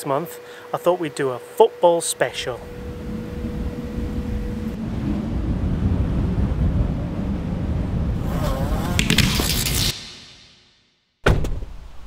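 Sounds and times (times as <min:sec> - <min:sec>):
rumbling whoosh: 0:02.6 - 0:10.5.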